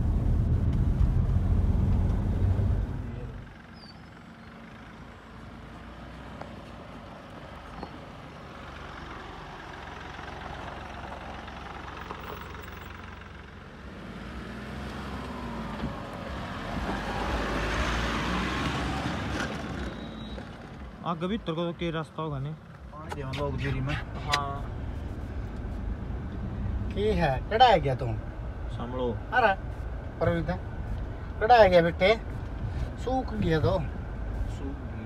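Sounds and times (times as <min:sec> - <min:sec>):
diesel engine running: 0:00.0 - 0:35.0
tyres on dirt: 0:13.9 - 0:21.5.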